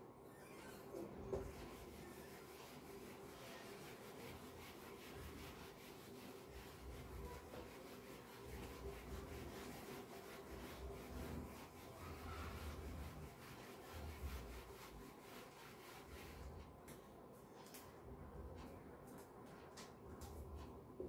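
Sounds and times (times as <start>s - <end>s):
eraser wiping whiteboard: 0.8s - 16.7s.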